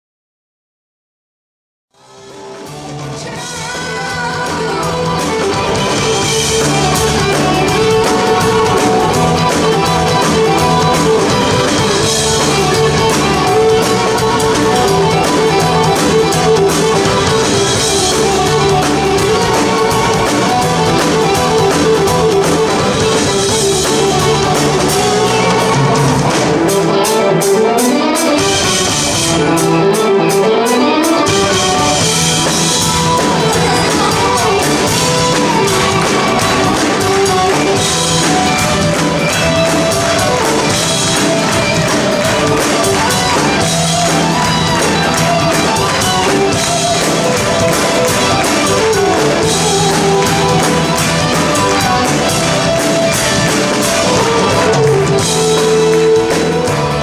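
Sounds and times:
live rock band playing: 0:02.0 - 0:57.0.

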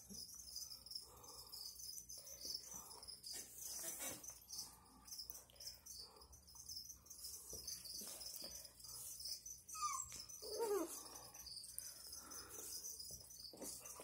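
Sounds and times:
dogs play-fighting: 0:07.3 - 0:11.5, 0:12.5 - 0:14.0
dog whining: 0:09.3 - 0:11.3
dog squeaking: 0:09.5 - 0:11.0.

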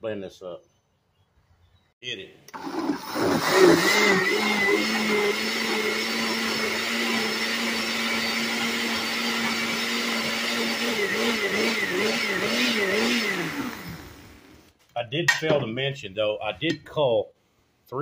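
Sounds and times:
blender running: 0:02.5 - 0:14.6.

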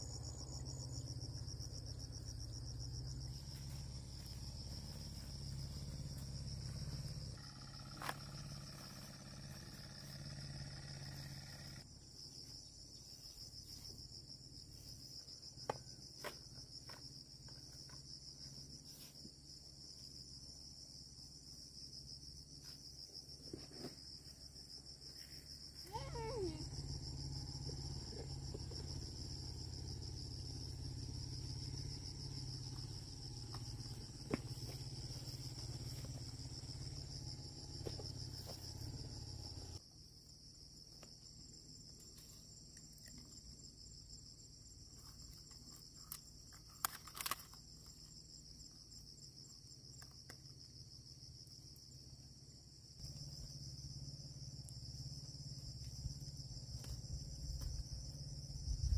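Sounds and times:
insects chirring: 0:00.0 - 0:58.9
plants rustling and clicking: 0:45.2 - 0:47.9.

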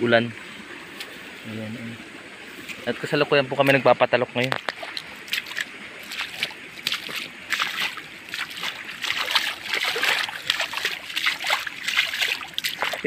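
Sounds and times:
shallow water splashing: 0:02.1 - 0:13.0.

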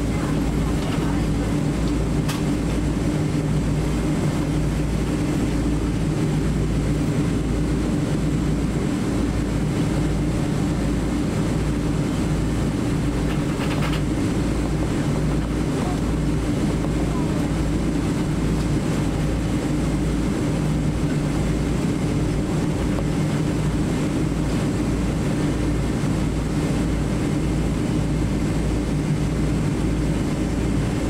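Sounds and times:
airplane cabin rumble: 0:00.0 - 0:31.0.

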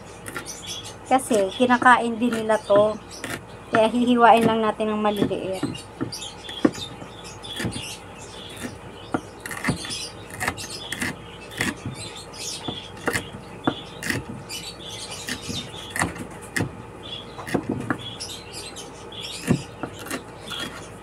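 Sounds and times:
knife chopping on wooden board: 0:01.8 - 0:14.5, 0:15.2 - 0:16.8, 0:17.4 - 0:18.1, 0:19.4 - 0:20.8.

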